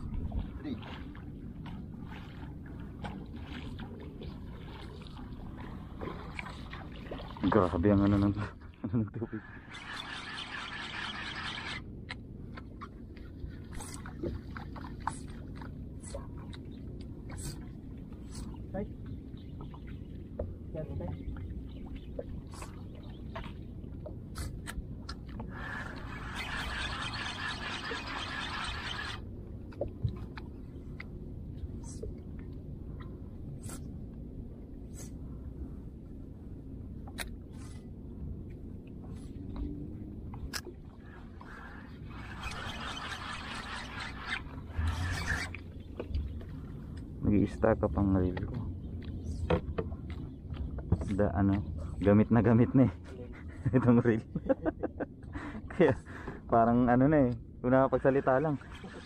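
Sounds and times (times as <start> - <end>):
low rumble of water and air: 0.0 - 59.0
water lapping against hull: 0.0 - 59.0
fishing reel whirring: 9.5 - 11.9, 25.6 - 29.2, 42.1 - 45.6.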